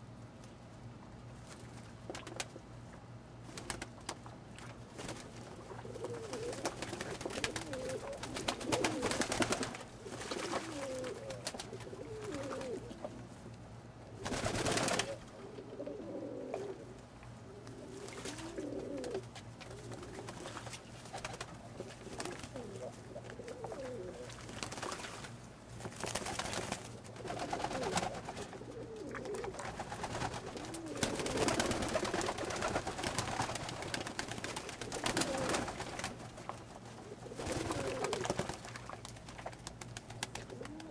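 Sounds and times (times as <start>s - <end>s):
wings flapping: 3.4s - 4.3s, 4.9s - 12.9s, 14.2s - 15.3s, 17.8s - 40.9s
pigeons cooing: 5.5s - 13.3s, 14.2s - 20.6s, 21.2s - 24.4s, 26.8s - 38.6s, 40.2s - 40.9s.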